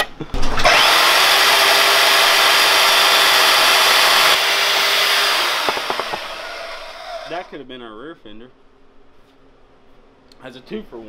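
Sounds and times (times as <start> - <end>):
band saw cutting plastic: 0.6 - 7.5
saw motor winding down: 0.6 - 7.5.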